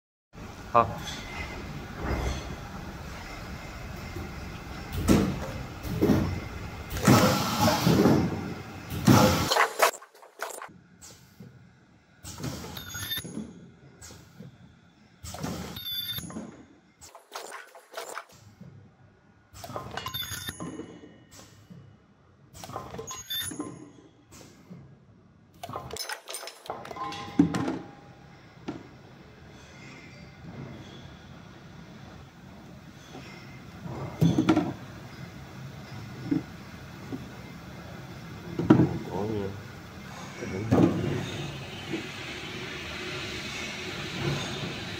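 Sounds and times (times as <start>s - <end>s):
loud mechanical noise bouts: 0.4s - 10.7s, 38.5s - 44.9s
machine metallic clicks and clunks: 25.5s - 28.0s.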